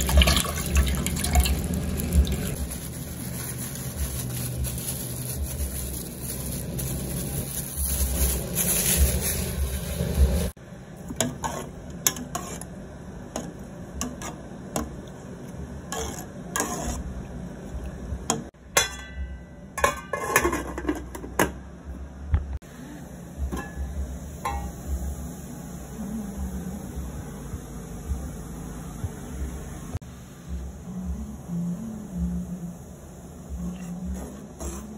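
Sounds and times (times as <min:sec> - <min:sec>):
metal spoon stirring in pot: 0:11.1 - 0:12.8, 0:15.8 - 0:17.1, 0:33.8 - 0:34.9.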